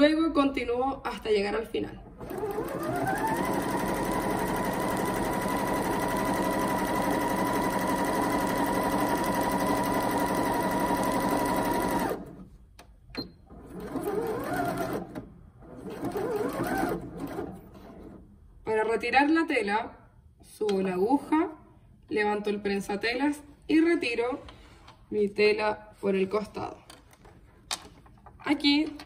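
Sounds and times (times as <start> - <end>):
sewing machine motor whining: 2.2 - 12.3.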